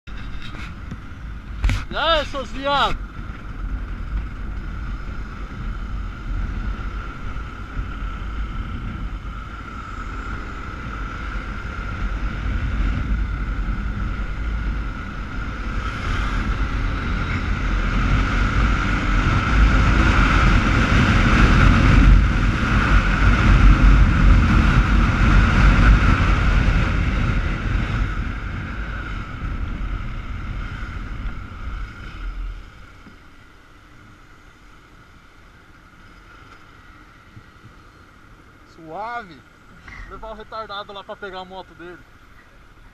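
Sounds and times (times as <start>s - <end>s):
wind buffeting microphone: 0.1s - 33.1s
motorcycle engine: 0.1s - 42.9s.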